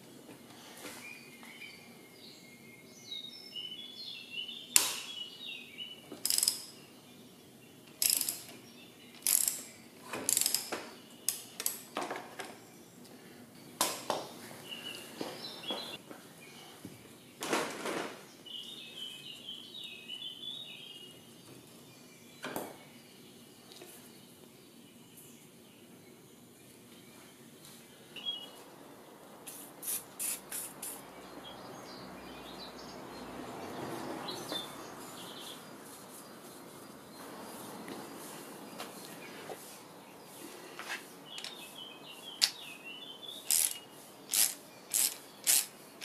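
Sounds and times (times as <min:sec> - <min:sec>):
socket wrench clicking: 0:06.2 - 0:06.7, 0:07.9 - 0:08.6, 0:09.2 - 0:09.7, 0:10.3 - 0:10.7, 0:11.3 - 0:11.9, 0:43.5 - 0:45.7.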